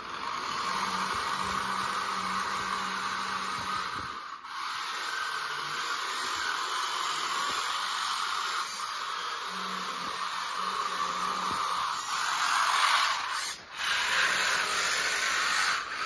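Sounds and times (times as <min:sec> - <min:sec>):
small electric motors whirring: 0:00.0 - 0:16.0.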